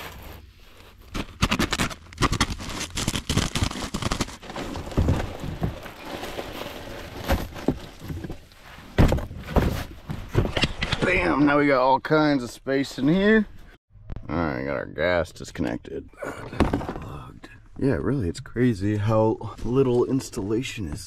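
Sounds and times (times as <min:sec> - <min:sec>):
duct rustling and scraping: 0:00.0 - 0:11.2
knocks and thunks: 0:09.0 - 0:11.0.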